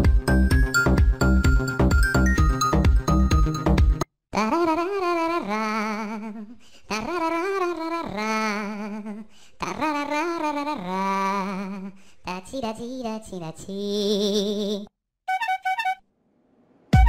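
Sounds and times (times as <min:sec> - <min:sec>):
person singing with vibrato: 0:04.4 - 0:14.9.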